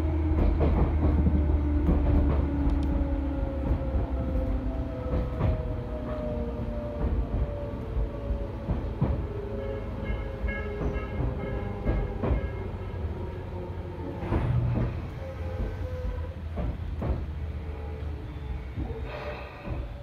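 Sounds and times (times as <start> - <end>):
steady train rumble: 0.0 - 20.0
train wheels clacking over rail joints: 0.2 - 4.4, 8.3 - 13.2, 14.2 - 17.4, 18.7 - 20.0.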